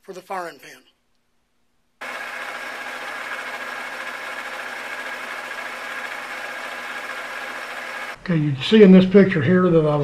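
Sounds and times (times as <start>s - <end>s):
metal lathe running: 2.0s - 8.2s.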